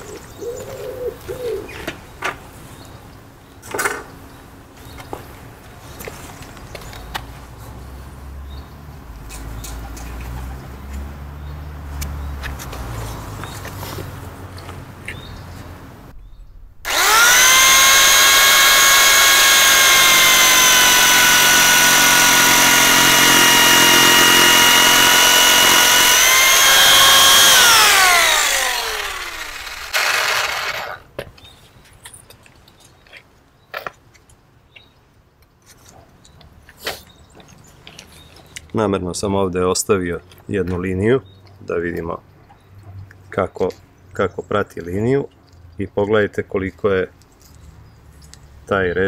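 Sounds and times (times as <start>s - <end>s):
jigsaw winding down whine: 16.8s - 31.0s
jigsaw cutting wood: 16.8s - 31.1s.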